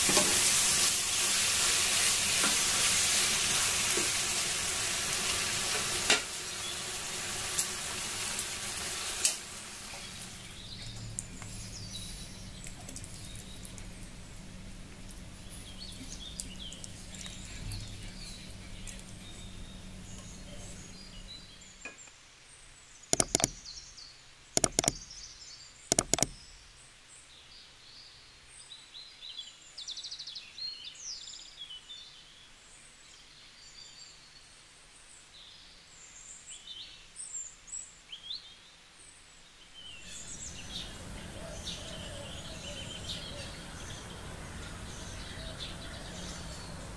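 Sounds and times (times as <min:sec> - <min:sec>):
background noise with low rumble: 0:09.9 - 0:21.8
small birds chirping: 0:09.9 - 0:21.8, 0:23.2 - 0:26.6, 0:39.8 - 0:46.9
loud sharp double clicks: 0:23.2 - 0:23.6, 0:24.6 - 0:25.0, 0:25.9 - 0:26.4.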